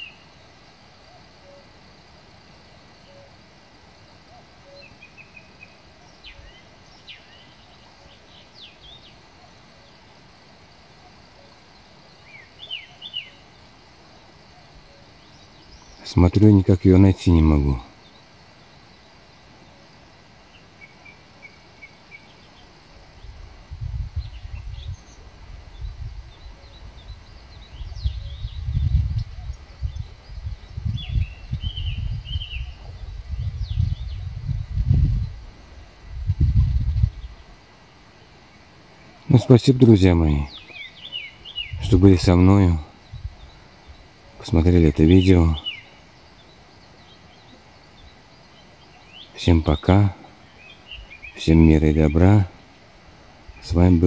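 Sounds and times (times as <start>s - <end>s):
faint outdoor hiss: 0.0s - 54.0s
songbird chirping: 0.0s - 54.0s
wind buffeting microphone: 23.2s - 37.5s, 41.6s - 44.2s
river murmuring: 37.3s - 54.0s.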